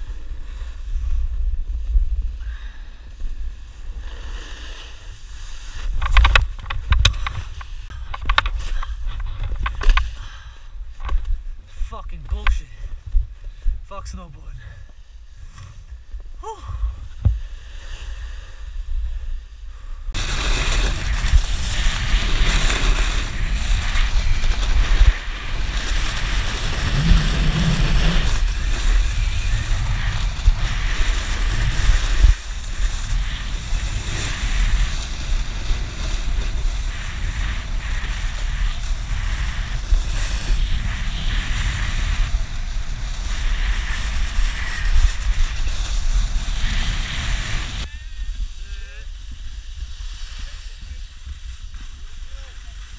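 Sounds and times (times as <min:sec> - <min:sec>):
snowboard scraping over snow: 0:00.0 - 0:13.5, 0:17.0 - 0:52.9
wind buffeting microphone: 0:20.1 - 0:52.9.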